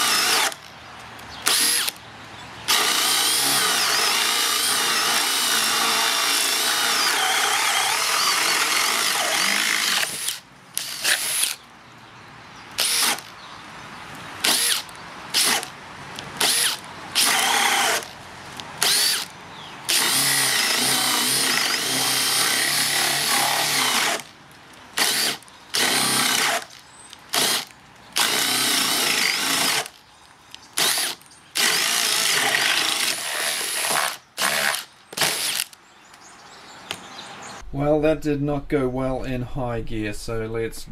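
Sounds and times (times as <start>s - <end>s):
cordless drill motor: 0.0s - 0.6s, 1.4s - 2.0s, 2.7s - 11.6s, 12.8s - 13.3s, 14.4s - 15.7s, 16.4s - 18.2s, 18.8s - 19.3s, 19.9s - 24.3s, 25.0s - 30.0s, 30.8s - 35.8s.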